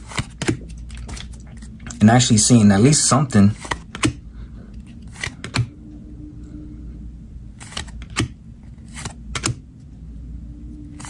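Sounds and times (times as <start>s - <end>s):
cards snapping and sliding: 0.0s - 2.0s, 3.6s - 4.2s, 4.8s - 5.7s, 7.6s - 9.6s
faint steady hum: 0.0s - 11.0s.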